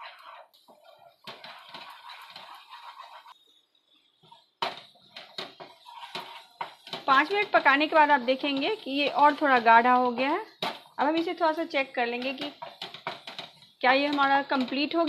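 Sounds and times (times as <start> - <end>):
wooden spatula scraping pan: 0.0 - 15.0
spatula knocking against pan: 4.6 - 14.7.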